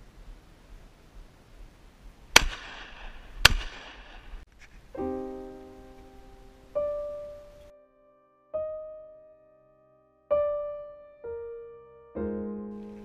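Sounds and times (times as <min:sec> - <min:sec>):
shotgun shots: 0:02.3 - 0:04.5
piano music: 0:05.0 - 0:13.0.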